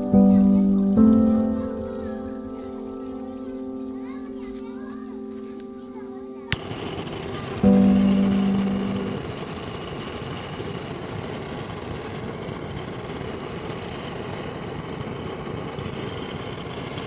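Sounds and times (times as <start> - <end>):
gas torch hissing roar: 6.5 - 17.0.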